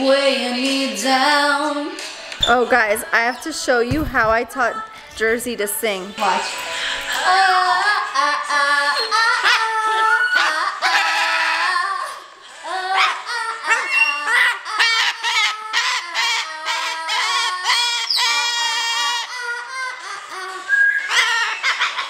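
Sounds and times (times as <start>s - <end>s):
song with vocals and beat: 0.0s - 10.1s.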